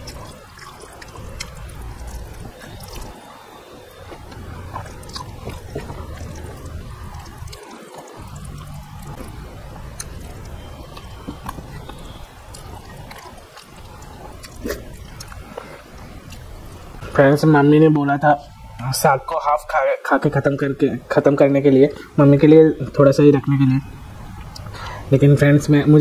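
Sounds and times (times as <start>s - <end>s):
chewing and wet mouth clicks: 0.0s - 16.8s, 24.3s - 24.8s.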